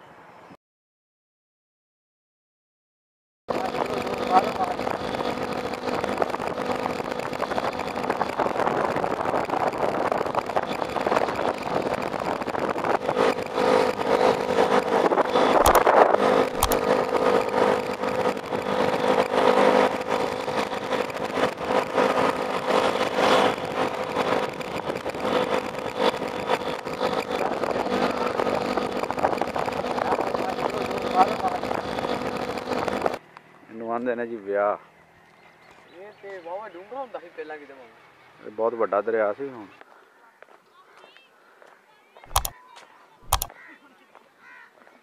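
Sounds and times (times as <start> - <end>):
vehicle engine running: 3.5 - 33.8, 42.3 - 42.5, 43.2 - 43.5
sharp clicks: 4.9 - 21.6, 42.3 - 42.6, 43.2 - 43.6.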